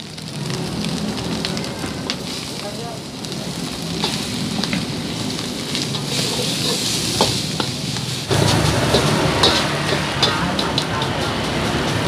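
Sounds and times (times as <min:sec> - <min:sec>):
rice sizzling in a wok: 0:00.0 - 0:12.0
metal ladle scraping a wok: 0:05.8 - 0:12.0.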